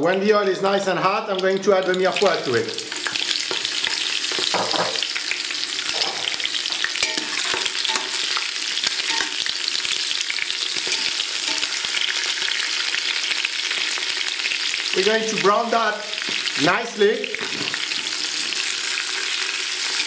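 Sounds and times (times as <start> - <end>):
vegetables sizzling in oil: 1.8 - 20.0
metal tongs clicking on pot: 7.0 - 8.2, 9.1 - 9.4.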